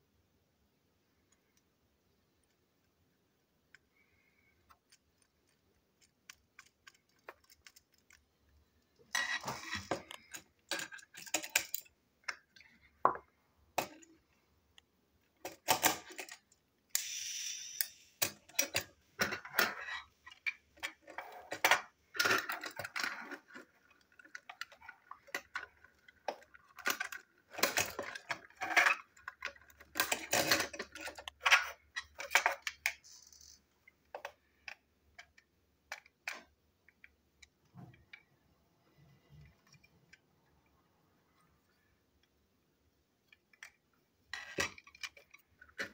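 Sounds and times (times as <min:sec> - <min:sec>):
plastic toy parts clicking: 0:04.6 - 0:13.0, 0:14.8 - 0:38.3, 0:43.2 - 0:45.9.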